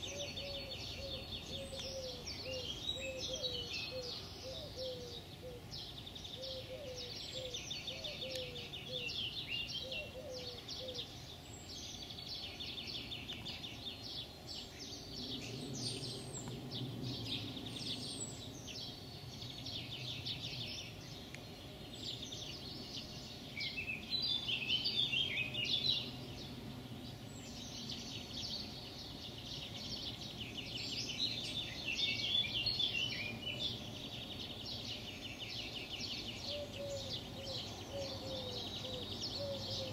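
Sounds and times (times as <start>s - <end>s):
bird chirps: 0.0s - 39.9s.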